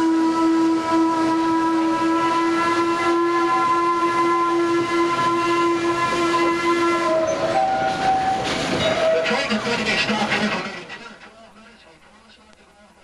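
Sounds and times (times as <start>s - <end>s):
steam locomotive whistle: 0.0s - 9.6s.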